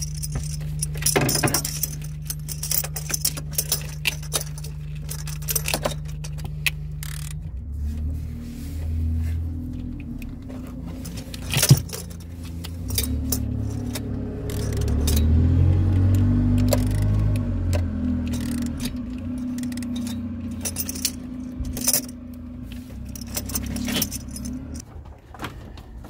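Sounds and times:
metal hand tools clinking: 0:00.0 - 0:07.4, 0:10.0 - 0:24.8
ratchet clicks: 0:00.0 - 0:07.4, 0:12.7 - 0:22.1.

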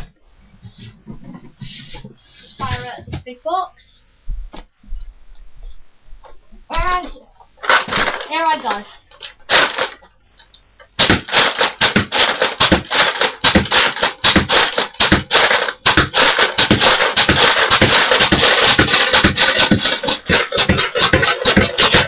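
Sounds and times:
toy blaster plastic clacks: 0:07.6 - 0:08.3, 0:09.2 - 0:10.0, 0:11.0 - 0:22.0.

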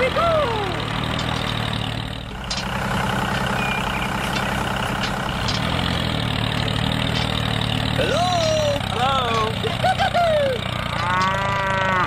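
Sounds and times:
toy tractor engine humming: 0:00.0 - 0:12.0.

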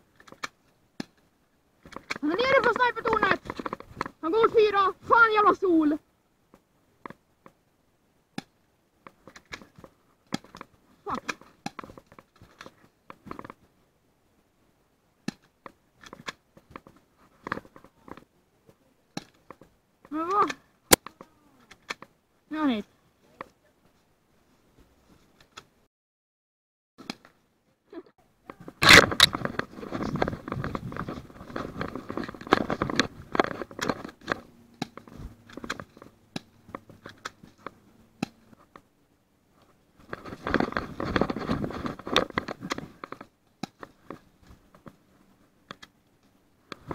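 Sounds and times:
gear clicks and rustles: 0:01.8 - 0:05.2, 0:09.0 - 0:13.7, 0:28.5 - 0:38.8, 0:39.5 - 0:46.9.

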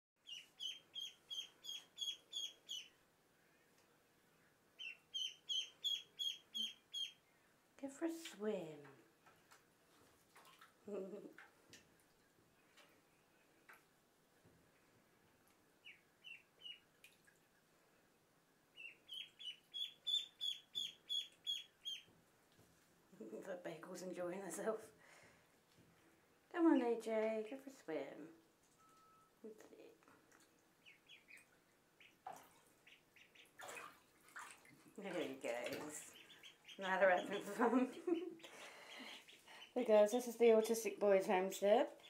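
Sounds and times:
ducklings peeping: 0:00.2 - 0:03.0, 0:04.8 - 0:07.2, 0:15.8 - 0:16.9, 0:18.7 - 0:22.1, 0:30.8 - 0:33.8, 0:35.1 - 0:40.6.

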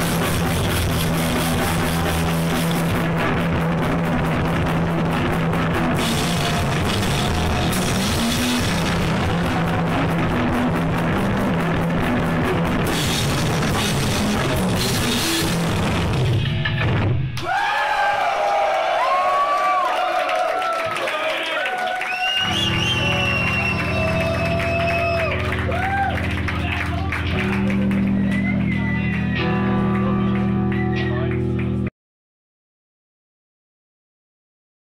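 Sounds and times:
heavy rock band playing: 0:00.0 - 0:17.6, 0:22.3 - 0:31.9
drum kit: 0:00.0 - 0:17.8, 0:22.2 - 0:31.9.

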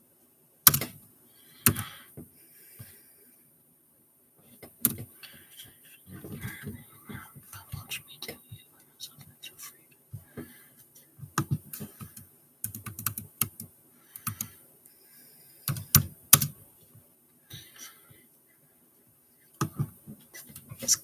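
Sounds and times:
typing on computer keyboard: 0:00.7 - 0:00.9, 0:11.4 - 0:14.6, 0:15.6 - 0:16.6.

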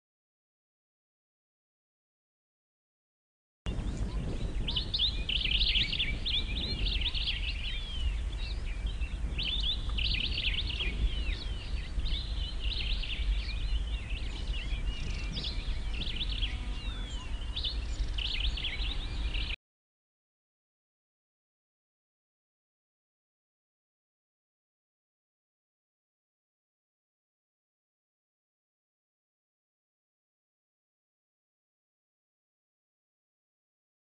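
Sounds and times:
small birds chirping: 0:03.7 - 0:19.6
steady low rumble: 0:03.7 - 0:19.6.

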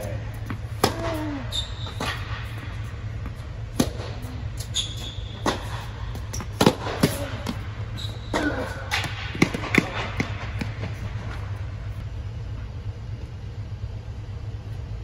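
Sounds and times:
steady low hum: 0:00.0 - 0:15.0
tennis ball bouncing: 0:00.4 - 0:07.6, 0:08.3 - 0:11.4
racket hitting tennis ball: 0:00.4 - 0:11.4
sneaker squeaks: 0:01.0 - 0:02.9, 0:04.1 - 0:09.1.

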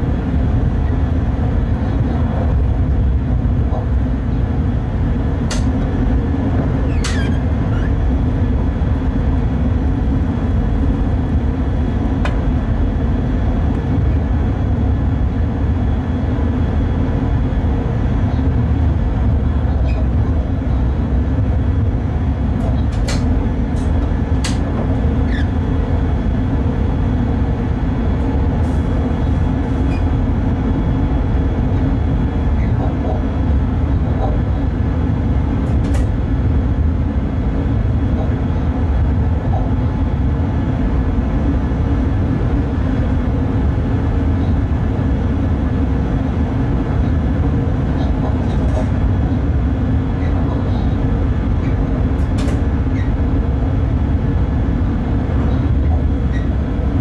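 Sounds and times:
locomotive cab rumble and hum: 0:00.0 - 0:57.0
sharp clicks or squeaks: 0:06.9 - 0:07.9.

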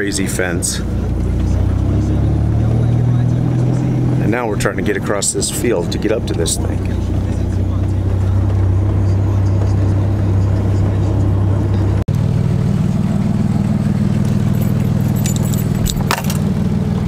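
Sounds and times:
vehicle engine and road drone: 0:00.0 - 0:17.0
steady low rumble: 0:00.2 - 0:12.1, 0:13.7 - 0:16.4
keys jingling: 0:14.2 - 0:16.6.

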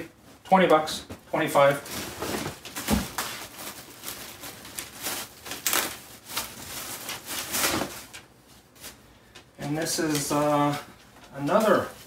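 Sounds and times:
clothing and bag rustling: 0:01.8 - 0:09.1.

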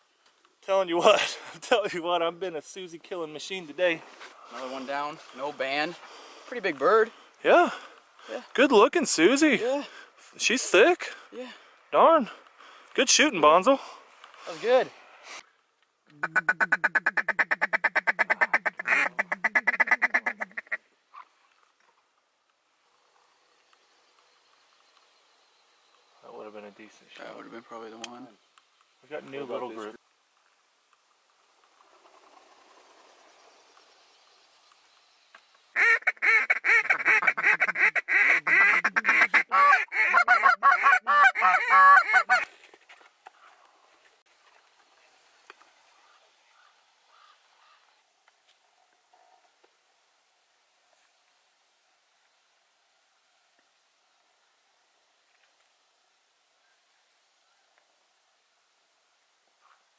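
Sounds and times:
duck call quacking chatter: 0:16.2 - 0:20.8, 0:35.8 - 0:42.5.

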